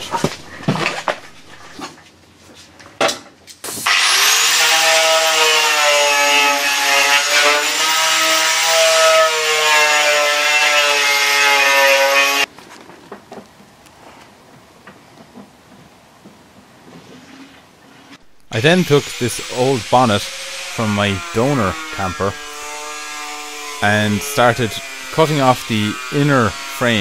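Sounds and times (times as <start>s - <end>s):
angle grinder with wire wheel: 18.5s - 27.0s.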